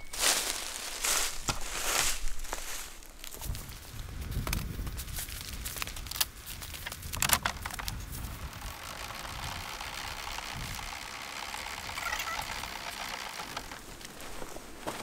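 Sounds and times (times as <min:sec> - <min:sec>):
sharp clicks and knocks: 0:06.2 - 0:14.2
hand crank ratcheting: 0:07.2 - 0:13.9.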